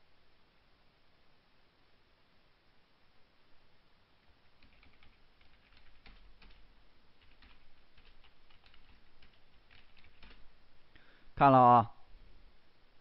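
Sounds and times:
faint keyboard typing: 0:04.2 - 0:10.6.

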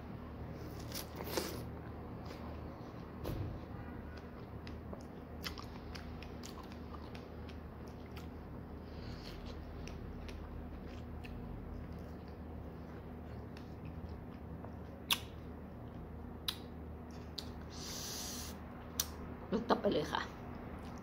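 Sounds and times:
person chewing strawberries: 0:00.6 - 0:03.0, 0:04.1 - 0:19.2, 0:20.5 - 0:21.0
wet mouth clicks: 0:15.1 - 0:15.4.

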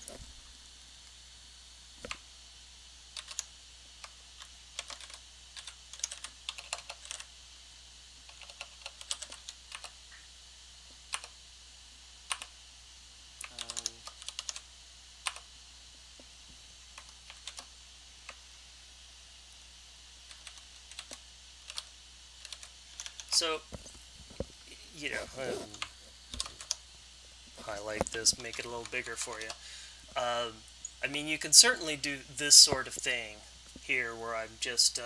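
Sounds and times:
typing on computer keyboard: 0:03.2 - 0:04.2, 0:04.8 - 0:07.3, 0:08.3 - 0:10.0, 0:12.3 - 0:12.5, 0:13.4 - 0:14.6, 0:15.3 - 0:15.5, 0:17.0 - 0:17.7, 0:20.3 - 0:23.3.

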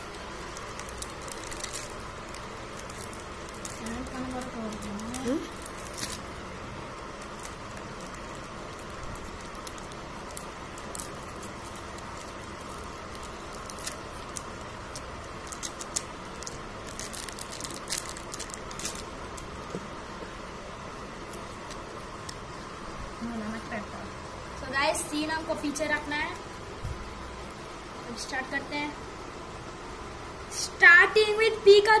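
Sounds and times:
foil wrapper crinkling: 0:00.0 - 0:20.0, 0:21.1 - 0:22.6
steady background hiss: 0:00.0 - 0:32.0.

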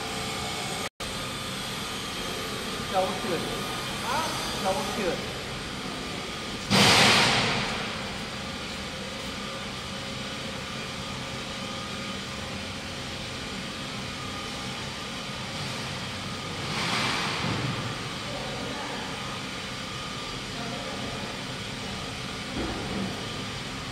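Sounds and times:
mixer humming: 0:00.0 - 0:06.8, 0:07.5 - 0:23.9
loud rushing noise: 0:06.6 - 0:08.1.

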